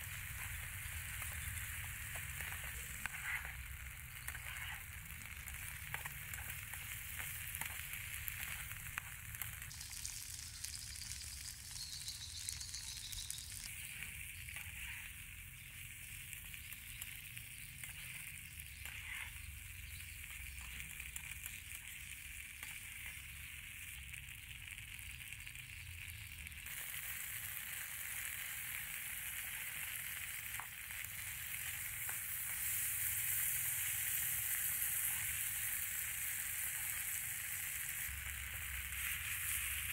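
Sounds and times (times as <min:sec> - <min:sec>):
food sizzling in a frying pan: 0:00.0 - 0:39.9
metal spatula scraping a pan: 0:00.2 - 0:05.0, 0:13.8 - 0:15.2, 0:17.7 - 0:21.3.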